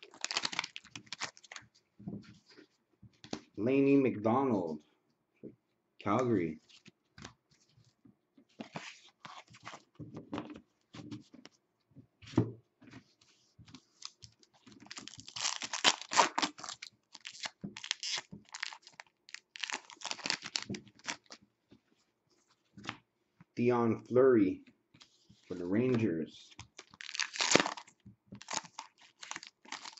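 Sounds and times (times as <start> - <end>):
card pack wrapper tearing: 0.0 - 1.6, 14.8 - 21.3, 26.8 - 29.9
cards rustling and clicking: 0.0 - 3.6, 8.5 - 11.6, 13.7 - 21.4, 26.5 - 29.9.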